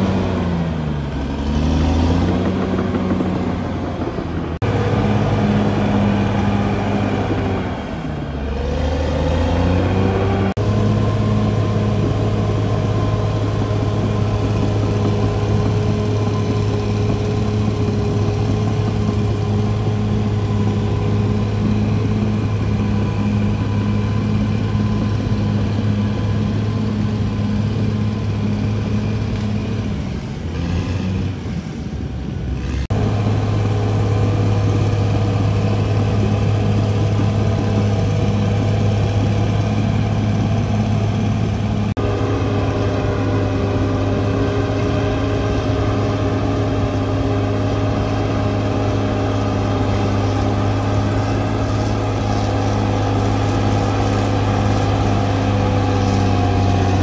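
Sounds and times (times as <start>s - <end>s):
bulldozer diesel engine running: 0.0s - 57.0s.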